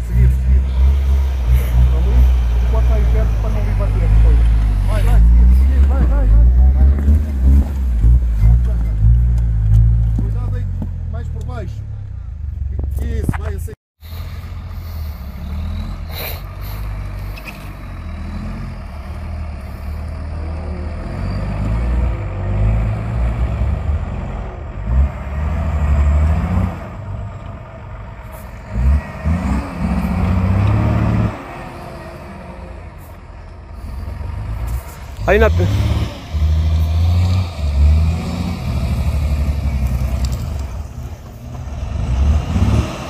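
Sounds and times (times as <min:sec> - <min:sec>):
off-road vehicle engine revving: 0:00.0 - 0:43.0.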